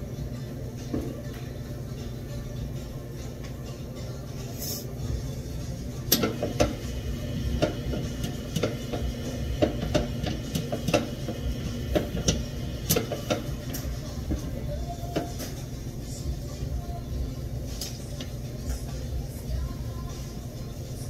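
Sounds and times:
utensils and dishes clinking: 6.1 - 15.8.

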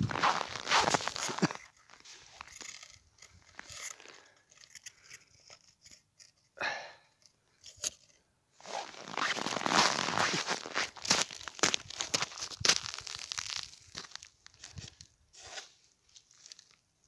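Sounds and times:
snow and ice crunching: 0.0 - 4.7, 8.6 - 16.8.

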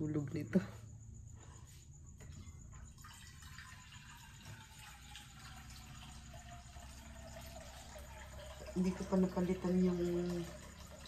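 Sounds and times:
water heating hiss: 2.7 - 11.0.

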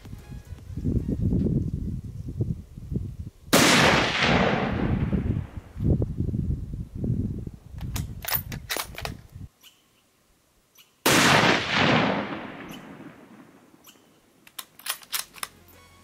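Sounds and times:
rifle shot: 3.5 - 5.5, 11.0 - 13.8
small clicks: 13.9 - 15.6.

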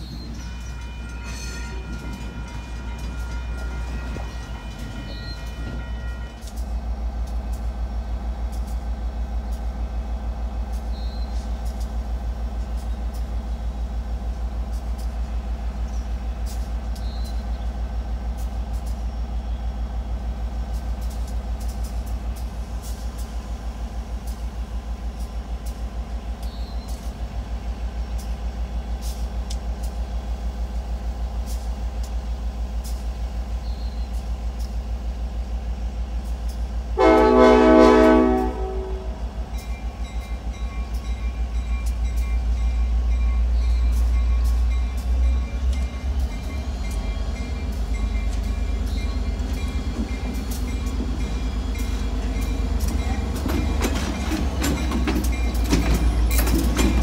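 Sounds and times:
locomotive low rumble: 0.0 - 57.0
locomotive air horn: 0.4 - 6.6, 37.0 - 39.2.

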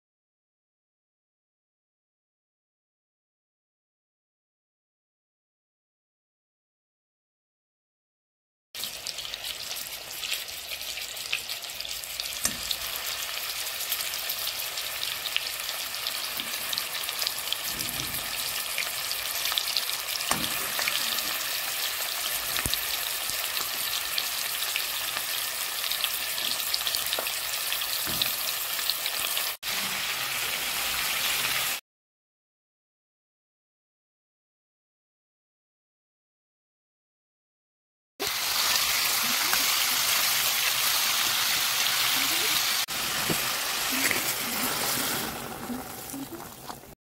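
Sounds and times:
meat sizzling in hot fat: 8.8 - 31.8, 38.2 - 47.0.

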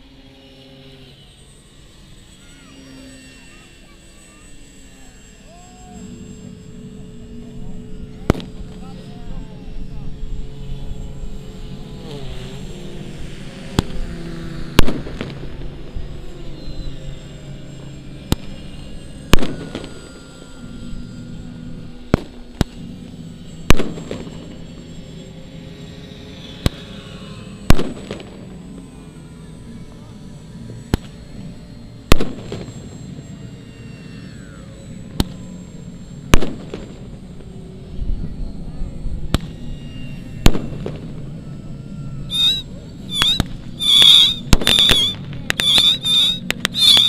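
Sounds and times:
model aircraft engines droning: 0.0 - 47.0
shrill wavering whistles: 16.5 - 17.5, 41.8 - 47.0
pyrotechnic bangs: 42.3 - 47.0.

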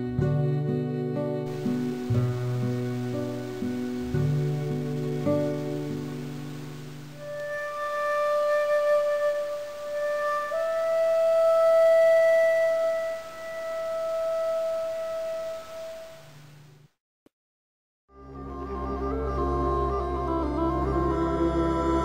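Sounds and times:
slow instrumental music: 0.0 - 16.5, 18.1 - 22.0.

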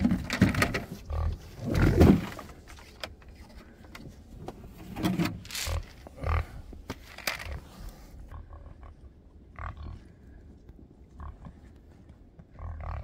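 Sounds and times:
pigs grunting: 0.0 - 2.6, 5.5 - 6.8, 7.4 - 10.5, 11.1 - 11.8, 12.4 - 13.0.

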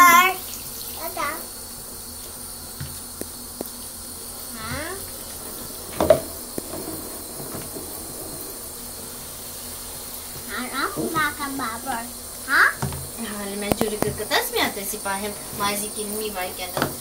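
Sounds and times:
faint hiss: 0.0 - 17.0
small knocks: 5.8 - 8.9.

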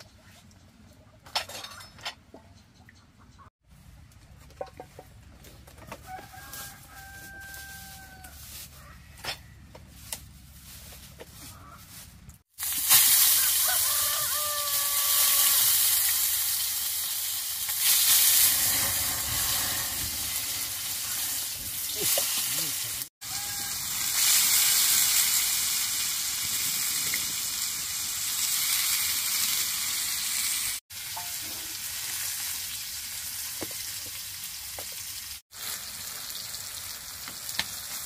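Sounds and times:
rooster crowing: 5.8 - 9.1, 13.4 - 15.8, 23.2 - 24.0
food sizzling in hot oil: 12.5 - 38.0.

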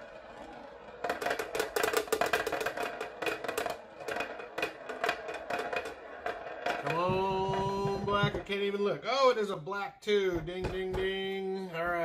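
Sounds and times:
roulette ball clattering: 0.1 - 8.5.

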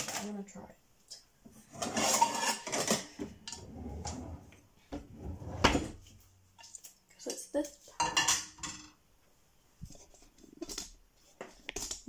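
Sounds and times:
cookware scraping and knocking: 1.7 - 4.4, 8.0 - 9.0.

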